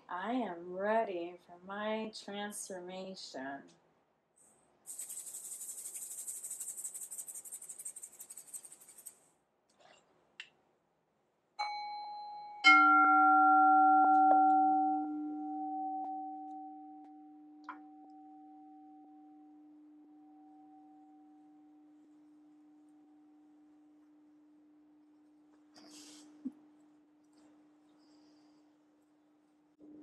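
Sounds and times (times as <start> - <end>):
singing bowls ringing: 11.6 - 21.9.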